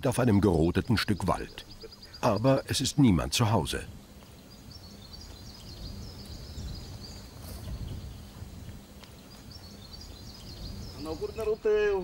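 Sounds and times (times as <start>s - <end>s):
high chirping bird calls: 0.1s - 12.0s.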